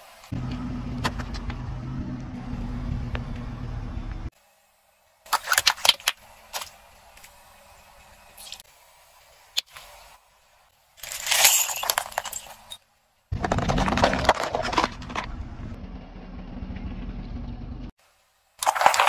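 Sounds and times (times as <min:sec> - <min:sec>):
car tyre rolling rumble: 0:00.3 - 0:04.3, 0:13.3 - 0:17.9
water beads crackling under tyre: 0:13.3 - 0:15.4, 0:18.6 - 0:19.0
chalk sticks crunching and snapping: 0:18.6 - 0:19.0.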